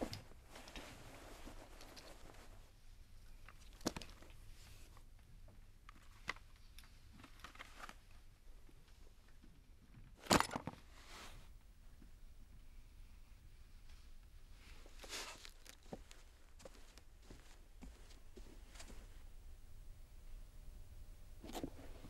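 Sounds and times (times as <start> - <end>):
rustling of clothes: 0.0 - 2.8, 13.6 - 19.4.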